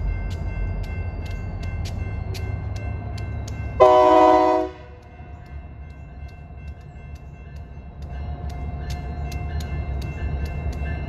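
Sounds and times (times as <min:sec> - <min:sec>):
regular clicks: 0:00.0 - 0:03.8, 0:05.0 - 0:11.0
locomotive rumbling: 0:00.0 - 0:11.0
locomotive air horn blast: 0:03.8 - 0:04.9.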